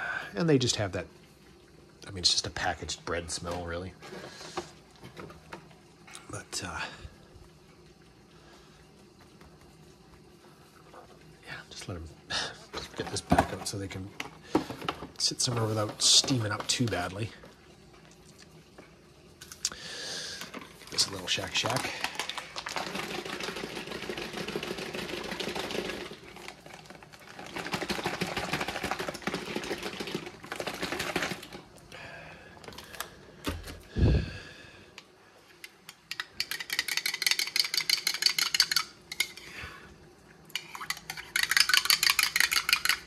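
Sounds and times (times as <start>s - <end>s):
container of liquid shaking: 12.4s - 17.4s, 20.4s - 31.7s, 35.9s - 39.4s, 40.5s - 43.0s.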